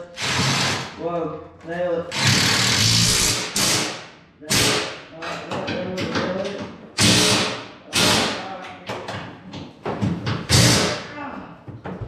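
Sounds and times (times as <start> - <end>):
impact wrench bursts: 0.1 - 1.0, 2.1 - 5.1, 7.0 - 8.4, 10.5 - 11.0.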